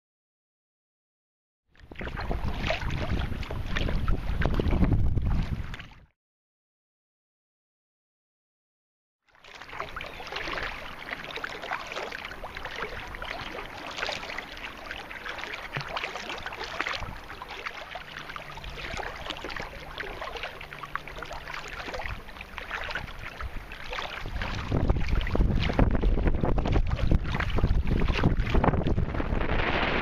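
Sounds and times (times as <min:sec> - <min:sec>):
water splashing against kayak hull: 0:01.8 - 0:06.1, 0:09.4 - 0:30.0
wind rumble on microphone: 0:01.8 - 0:06.1, 0:16.8 - 0:17.3, 0:22.0 - 0:30.0.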